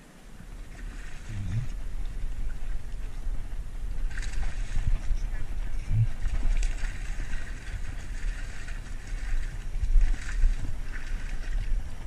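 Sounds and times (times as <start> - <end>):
wind rumble on microphone: 0.0 - 12.0
fish splashing in water: 3.9 - 12.0.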